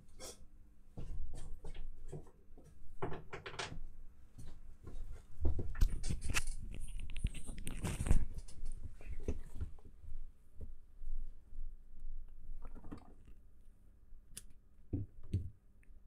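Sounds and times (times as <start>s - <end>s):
crackling and rustling: 4.4s - 10.2s.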